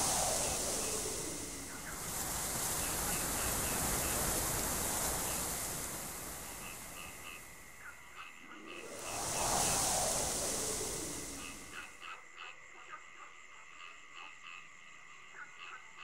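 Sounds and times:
steady hiss: 0.0s - 12.2s.

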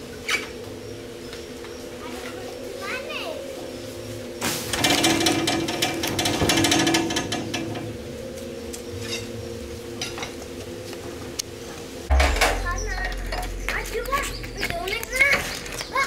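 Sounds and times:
band sawmill humming: 0.0s - 16.0s
log rattling through saw: 4.6s - 8.0s.

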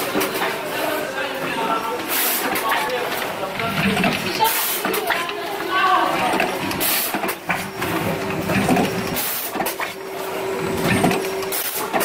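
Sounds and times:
machine hum: 1.6s - 12.0s
machine clicks and clatter: 2.0s - 10.0s, 10.6s - 12.0s.

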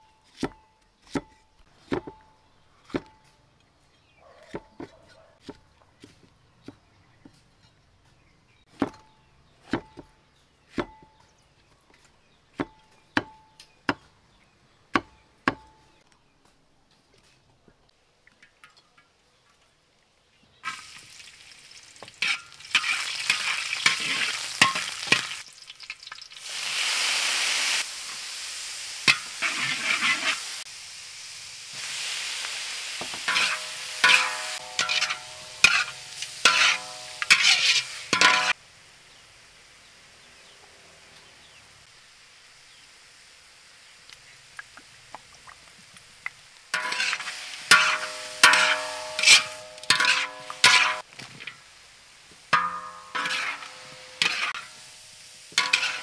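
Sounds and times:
food sizzling in hot oil: 20.6s - 56.0s
metal spatula scraping wok: 22.1s - 25.4s, 29.0s - 30.7s, 33.0s - 38.6s, 46.7s - 51.6s, 52.5s - 56.0s
wok ringing: 22.2s - 25.4s, 33.2s - 38.6s, 46.7s - 51.0s, 52.5s - 56.0s.

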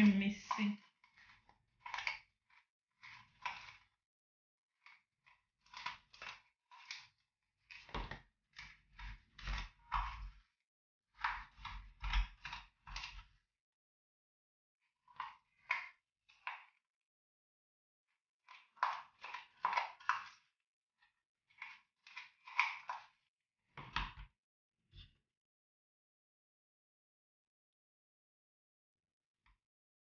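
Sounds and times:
spatula scraping scrub in plastic tub: 0.0s - 4.0s, 4.7s - 13.4s, 18.4s - 24.0s.

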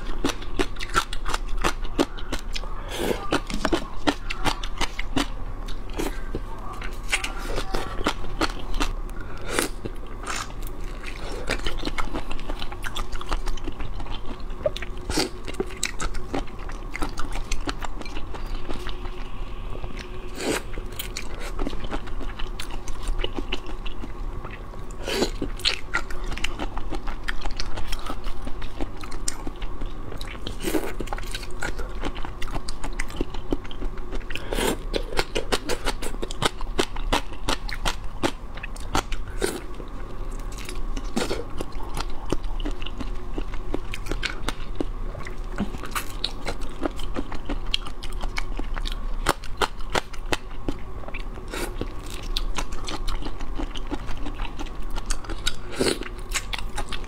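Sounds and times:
crunching while eating: 0.0s - 57.0s
wet chewing mouth sounds: 0.0s - 57.0s.

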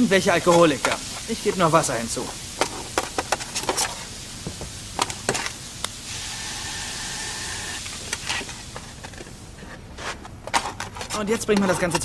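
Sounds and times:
water hissing in hot tray: 0.0s - 9.0s.

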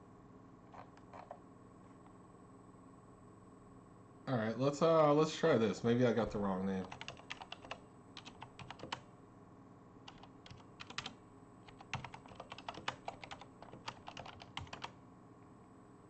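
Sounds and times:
typing on computer keyboard: 6.8s - 9.0s, 10.1s - 15.0s.

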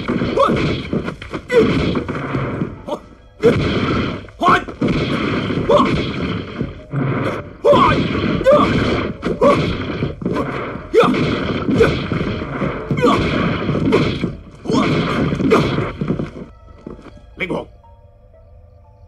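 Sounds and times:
man shouting: 7.6s - 8.8s.

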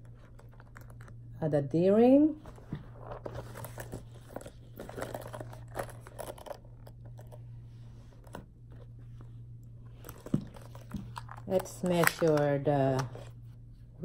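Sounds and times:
fabric bag strap rustling: 2.4s - 13.4s.

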